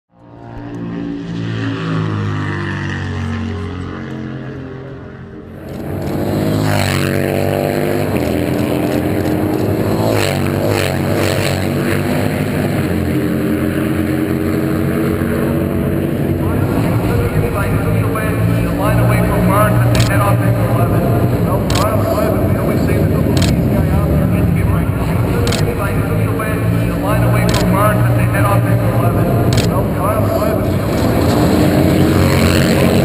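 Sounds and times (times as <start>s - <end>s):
motorcycle engines racing: 0.1s - 33.0s.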